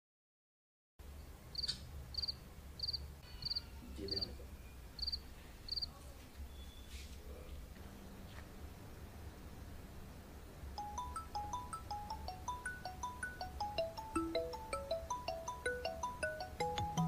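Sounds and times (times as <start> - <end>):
cricket chirping: 1.5 - 4.4, 5.0 - 5.9.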